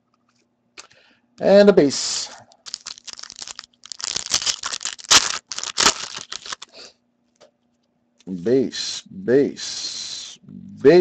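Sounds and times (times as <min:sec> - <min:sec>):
foil wrapper tearing and crinkling: 0:02.6 - 0:06.8.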